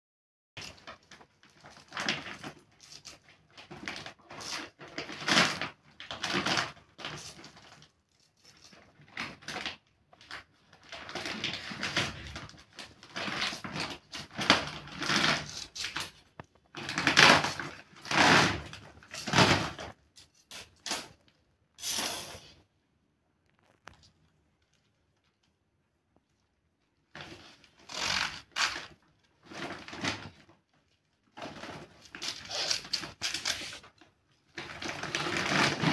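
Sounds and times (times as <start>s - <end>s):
blade crunching through cauliflower: 10.9s - 20.8s.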